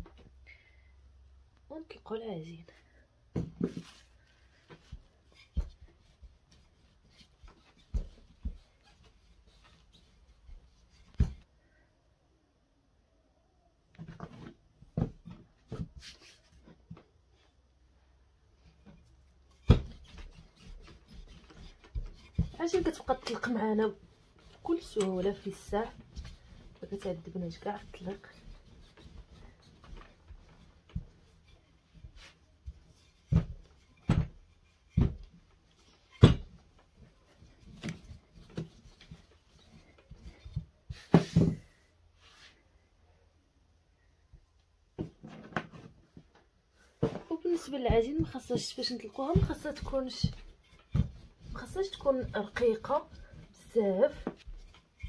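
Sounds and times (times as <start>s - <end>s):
rolling pin knocking and rubbing: 3.3s - 11.5s, 18.8s - 41.8s, 47.0s - 55.0s.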